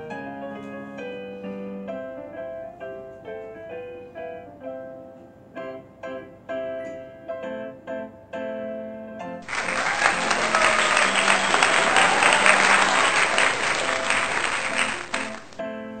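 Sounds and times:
gentle piano music: 0.0 - 16.0
applause: 9.4 - 15.6.

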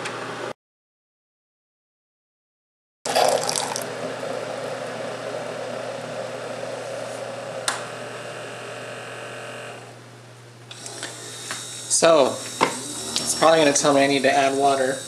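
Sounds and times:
hot water pouring: 3.1 - 3.9
coffee maker low hum: 3.1 - 15.0.

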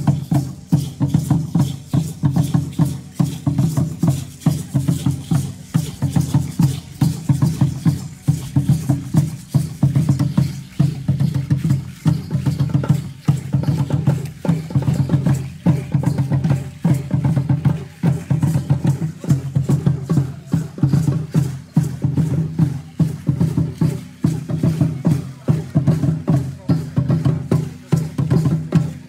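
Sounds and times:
heavy wooden drum beats: 0.0 - 29.0.

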